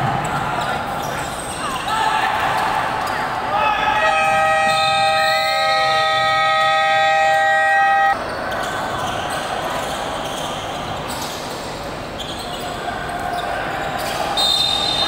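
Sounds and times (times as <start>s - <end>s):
indoor gym hum: 0.0s - 15.0s
scoreboard buzzer horn: 4.1s - 8.2s.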